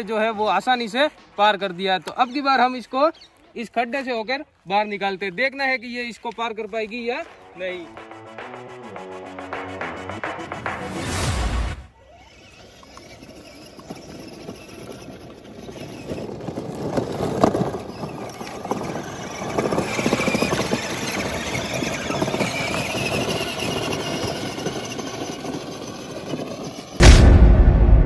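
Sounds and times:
wheels crackling over dry grass: 0.0 - 8.0, 12.0 - 27.0
electric motors whining: 11.9 - 16.8, 17.7 - 27.0.

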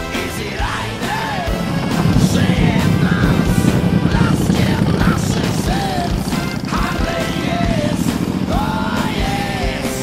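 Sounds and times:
rock music: 0.0 - 10.0.

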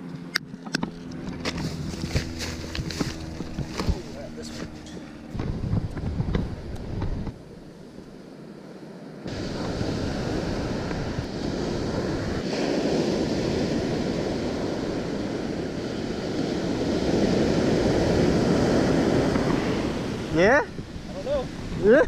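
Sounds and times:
wind buffeting microphone: 0.6 - 8.4, 9.2 - 22.0
ocean surf breaking on sand: 7.4 - 22.0.

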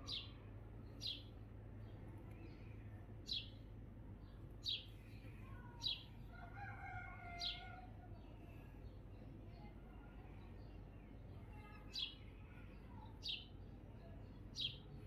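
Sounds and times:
faint rooster crowing: 6.3 - 8.0.

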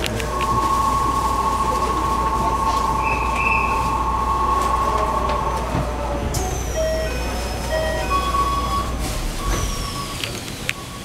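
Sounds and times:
high thin tone: 0.0 - 7.4
platform crowd hubbub: 0.0 - 11.0.

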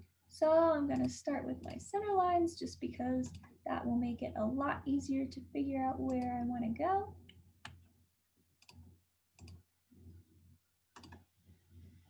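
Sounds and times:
computer mouse clicking: 0.9 - 1.8, 9.4 - 9.6, 11.0 - 11.2.

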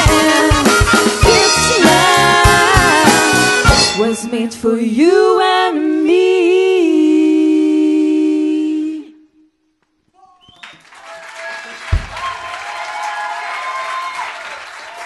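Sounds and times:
woman singing unaccompanied: 0.0 - 9.2.

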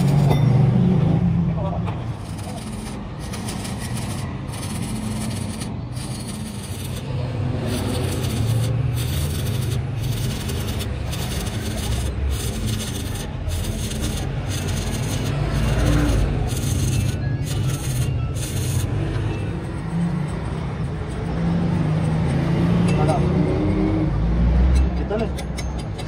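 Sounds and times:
welding arc crackling and sizzling: 2.2 - 18.9.

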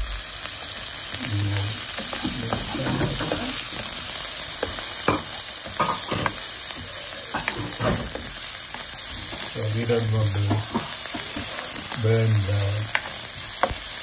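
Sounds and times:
onions sizzling in hot oil: 0.0 - 14.0
spatula scraping a pan: 10.4 - 12.0.

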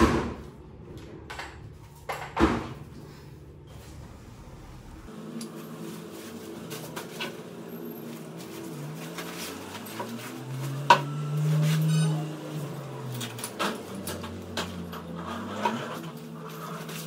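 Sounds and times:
low hum: 3.2 - 6.0.

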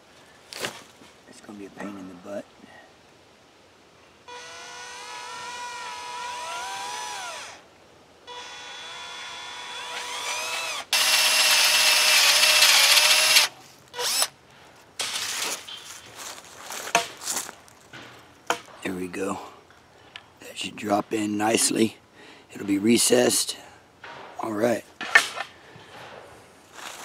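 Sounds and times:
cordless drill boring into wood: 4.3 - 7.6, 8.3 - 14.3.

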